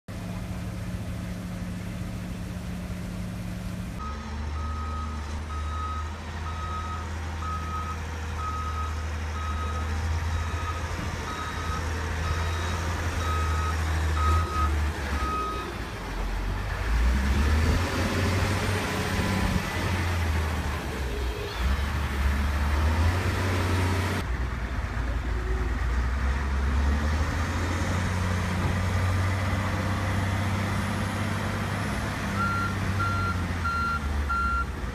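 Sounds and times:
diesel engine running: 0:00.1 - 0:34.9
reversing alarm beeping: 0:04.0 - 0:15.7, 0:32.4 - 0:34.7.

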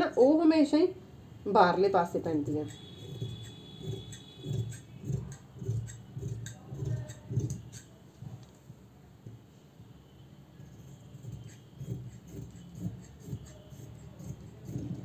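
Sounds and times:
shears cutting fabric: 0:02.4 - 0:08.0, 0:10.6 - 0:15.0.

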